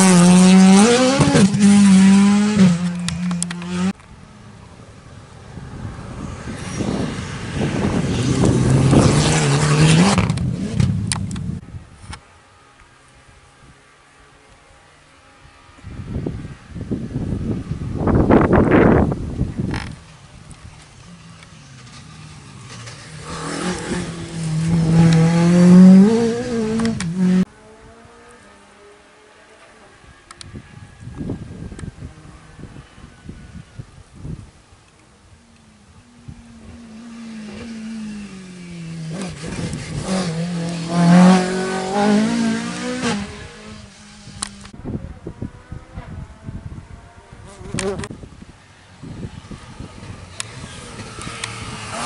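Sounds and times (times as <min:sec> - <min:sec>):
rally car engine accelerating: 0:00.0 - 0:04.0, 0:06.6 - 0:11.3, 0:22.1 - 0:29.9, 0:36.6 - 0:44.8.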